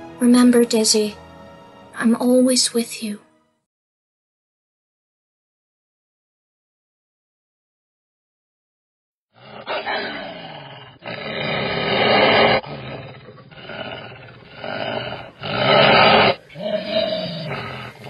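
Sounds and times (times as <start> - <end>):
monster growls and roars: 9.3 - 18.0.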